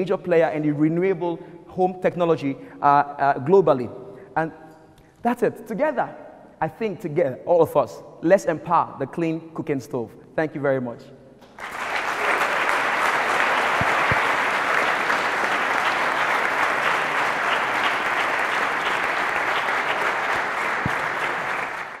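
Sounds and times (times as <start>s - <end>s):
audience applauding: 11.4s - 22.0s.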